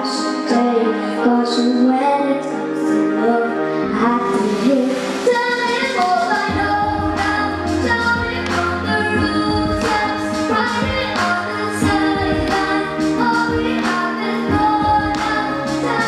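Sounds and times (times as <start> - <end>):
girl singing into microphone: 0.0 - 16.0
instrumental accompaniment: 1.8 - 16.0.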